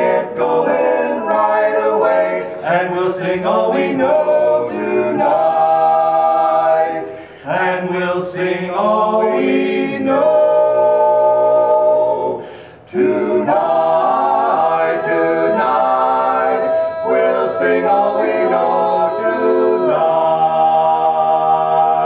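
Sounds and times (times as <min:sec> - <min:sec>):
male a cappella quartet singing: 0:00.0 - 0:22.0
breath: 0:07.1 - 0:07.5, 0:12.4 - 0:12.9.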